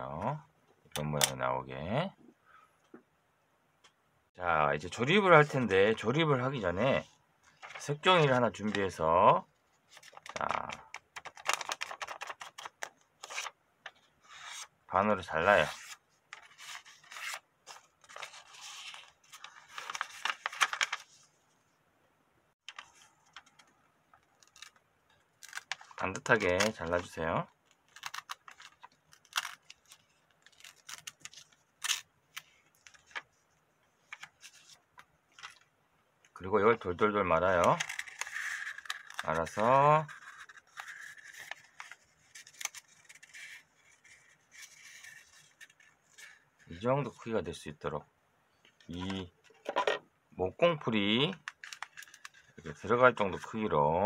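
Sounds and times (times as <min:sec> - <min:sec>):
paper rustling and crinkling: 0:07.4 - 0:09.0, 0:09.9 - 0:14.7, 0:15.4 - 0:21.4, 0:22.6 - 0:24.8, 0:25.4 - 0:33.4, 0:37.4 - 0:46.5, 0:51.2 - 0:53.6.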